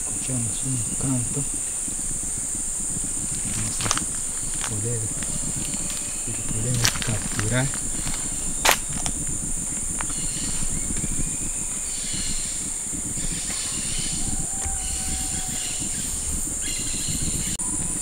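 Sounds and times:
insects droning: 0.0s - 18.0s
short repeated insect calls: 0.0s - 18.0s
footsteps through leaf litter: 3.4s - 9.2s.

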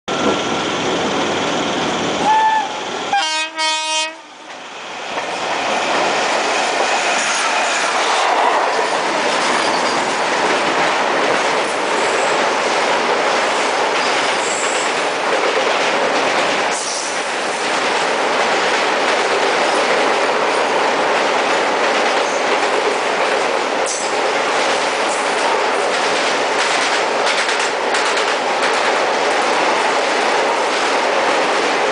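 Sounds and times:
train horn blast: 2.2s - 4.3s
train wheels clickety-clack: 4.4s - 31.9s
wheels rattling over bridge track: 5.2s - 31.9s.

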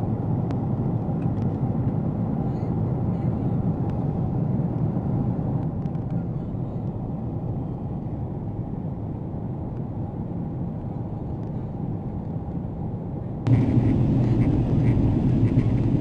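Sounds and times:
airplane cabin drone: 0.0s - 16.0s
rushing airflow: 13.5s - 16.0s.

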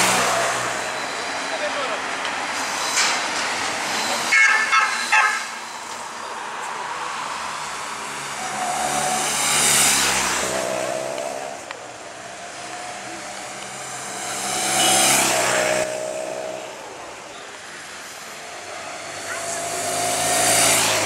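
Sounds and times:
motorcycles passing by: 7.4s - 21.0s.

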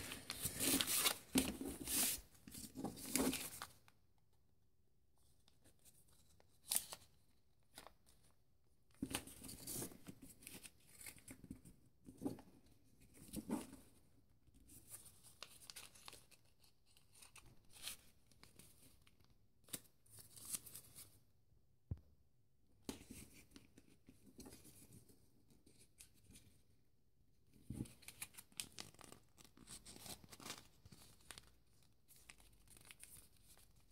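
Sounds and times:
paper rustling and crinkling: 0.0s - 3.9s, 14.8s - 21.2s, 27.6s - 33.9s.

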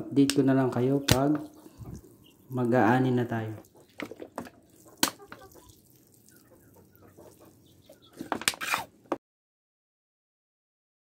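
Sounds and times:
water splashing onto soil: 1.1s - 8.3s
faint chicken clucks: 3.5s - 8.8s.

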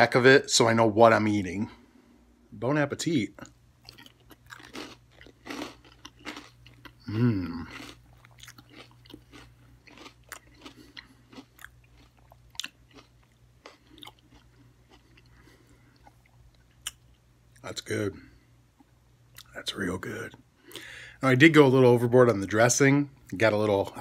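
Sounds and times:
person chewing crunchy food: 3.4s - 17.6s.

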